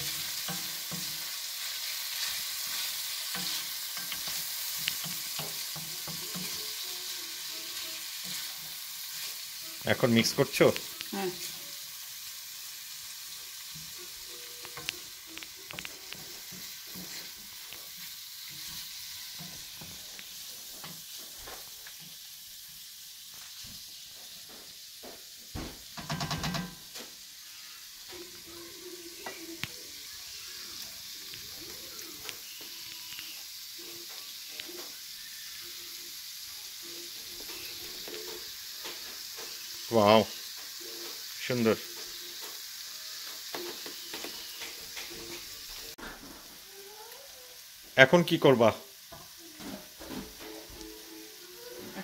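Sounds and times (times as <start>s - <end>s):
vegetables sizzling in oil: 0.0s - 52.0s
wooden spatula scraping pan: 15.8s - 21.7s.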